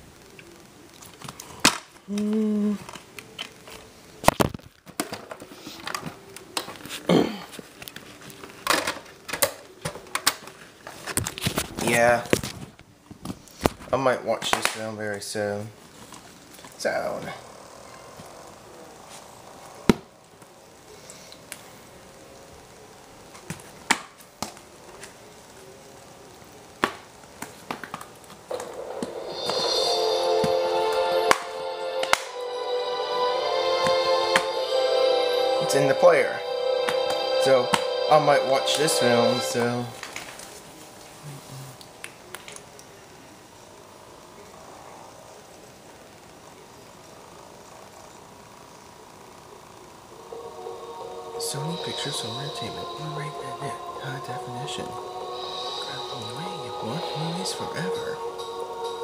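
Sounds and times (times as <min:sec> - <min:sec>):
music through small speaker: 0:29.3 - 0:40.0, 0:50.2 - 0:59.0.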